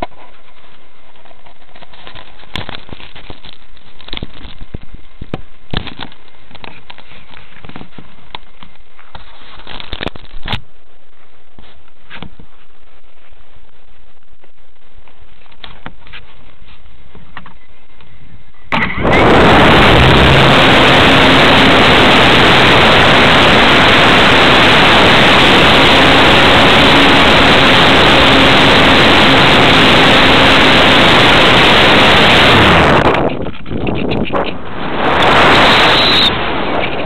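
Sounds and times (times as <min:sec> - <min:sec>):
electric motor and propeller drone: 0:18.7 - 0:37.0.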